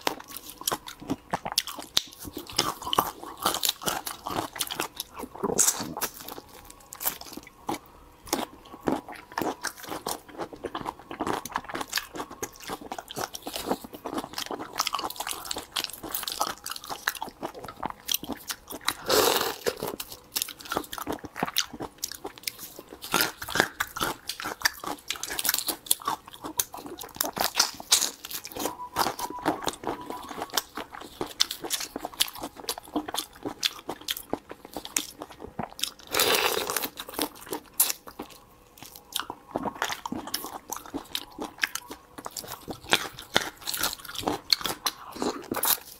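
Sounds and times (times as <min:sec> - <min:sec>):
chewing: 0:00.0 - 0:45.9.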